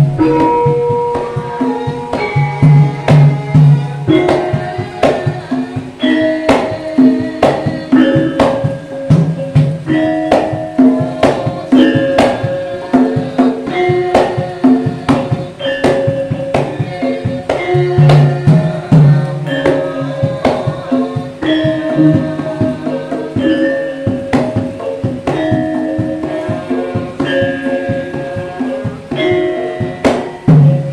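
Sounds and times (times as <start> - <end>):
hand drum strokes: 0.0 - 30.9
metallophones and gong-chimes ringing: 0.0 - 30.9.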